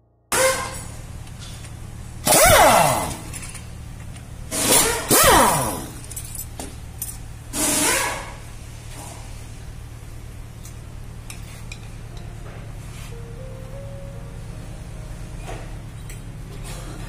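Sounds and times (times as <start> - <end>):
steady low hum: 0.0 - 17.0
metal tools clinking and scraping: 3.2 - 4.1, 5.4 - 7.2.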